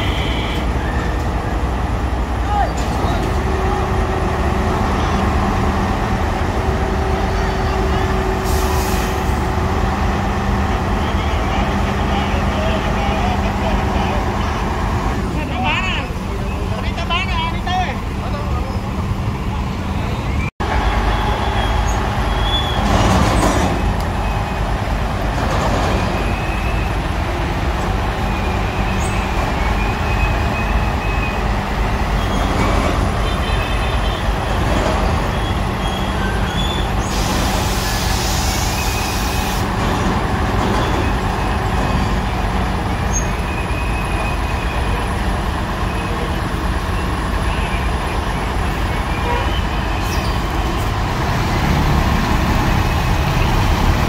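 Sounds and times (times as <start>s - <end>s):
diesel truck engine running: 0.0s - 54.0s
hiss: 8.4s - 9.3s, 37.0s - 39.6s.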